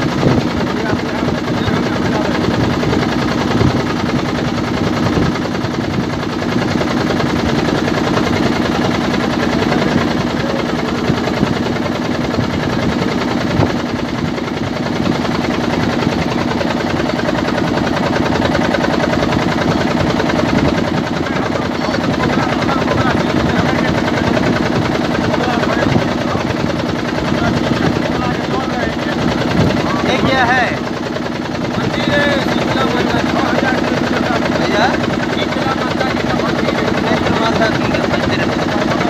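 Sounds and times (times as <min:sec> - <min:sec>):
motorboat engine chugging: 0:00.0 - 0:39.0.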